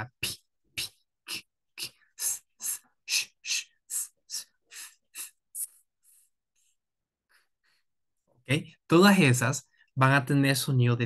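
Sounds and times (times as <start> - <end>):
man making consonant sounds: 0.0 - 5.8.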